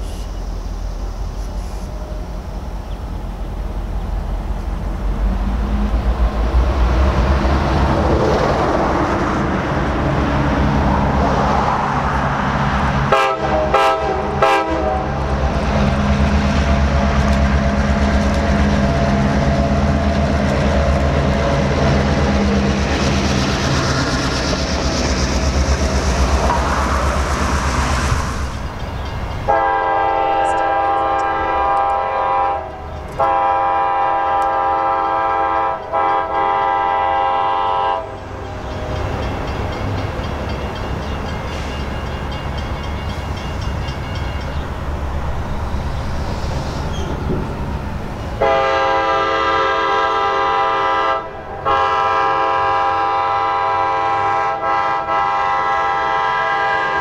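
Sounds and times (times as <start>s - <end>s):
train rumbling: 0.0s - 57.0s
locomotive horn blasts: 13.1s - 15.3s, 29.5s - 38.2s, 48.4s - 57.0s.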